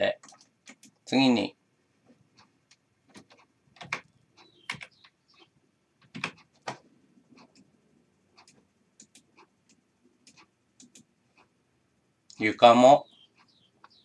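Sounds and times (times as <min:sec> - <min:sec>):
computer keyboard and mouse clicks: 0:00.1 - 0:01.0, 0:02.4 - 0:07.7, 0:08.3 - 0:11.5.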